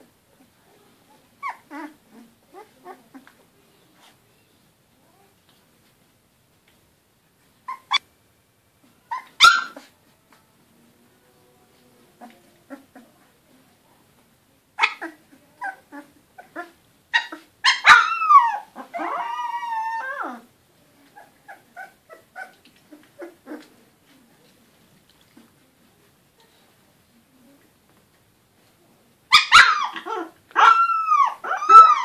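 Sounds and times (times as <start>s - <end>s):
puppies squeaking and yelping: 1.4s - 3.3s, 7.6s - 8.0s, 9.1s - 9.9s, 14.8s - 20.5s, 21.1s - 23.7s, 29.3s - 32.0s
puppy whining: 1.4s - 3.4s, 7.6s - 8.0s, 9.0s - 10.0s, 14.8s - 23.8s, 29.3s - 32.0s.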